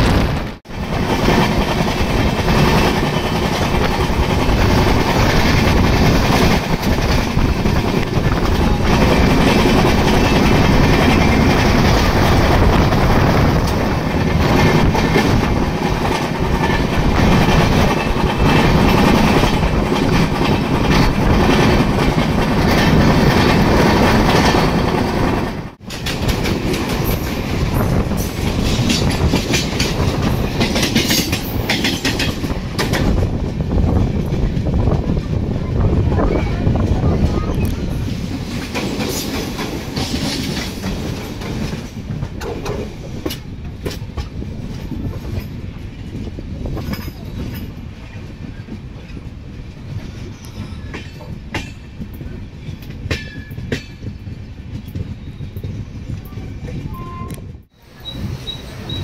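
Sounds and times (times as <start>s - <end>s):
train rumble: 0.0s - 59.0s
wheels clattering over rail joints: 0.8s - 35.4s, 36.6s - 56.3s.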